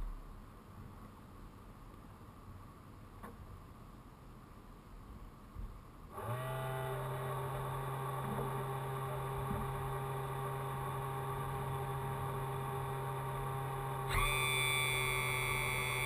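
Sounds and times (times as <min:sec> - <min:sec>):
engine starting and running: 0:06.2 - 0:08.6, 0:14.1 - 0:16.0.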